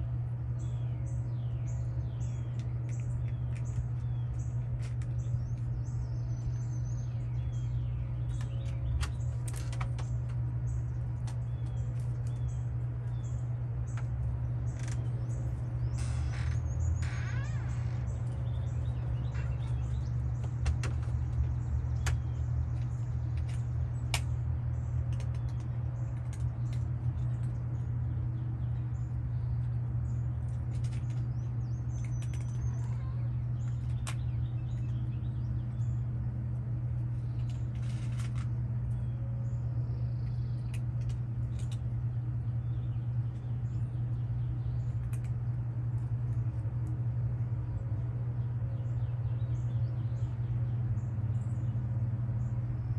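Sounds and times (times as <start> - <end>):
low mechanical hum: 0.0 - 52.9
faint high bird chirps: 14.7 - 20.5, 31.1 - 36.0.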